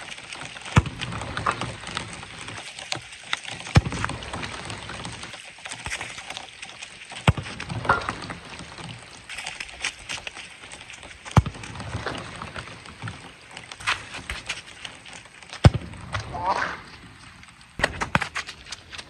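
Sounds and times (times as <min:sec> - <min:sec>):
footsteps on wet turf: 0:03.8 - 0:19.0
football kicked with thud: 0:15.6 - 0:16.8.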